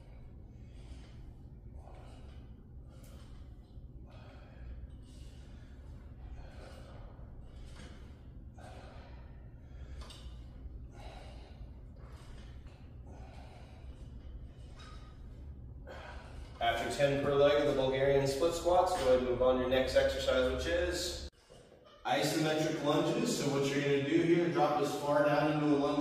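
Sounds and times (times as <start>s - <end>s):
man breathing hard: 0.0s - 16.6s
low steady hum: 0.0s - 26.0s.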